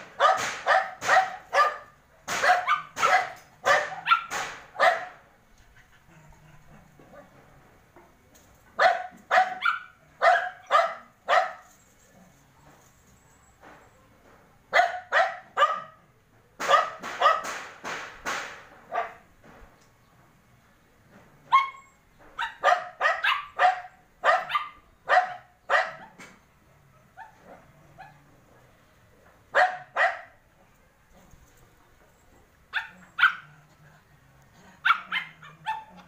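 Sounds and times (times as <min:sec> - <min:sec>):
dog barking: 0:00.2 - 0:05.2, 0:08.8 - 0:11.7, 0:14.7 - 0:16.0, 0:16.6 - 0:17.6, 0:18.9 - 0:19.2, 0:21.5 - 0:26.2, 0:29.5 - 0:30.4, 0:32.7 - 0:33.6, 0:34.8 - 0:36.0.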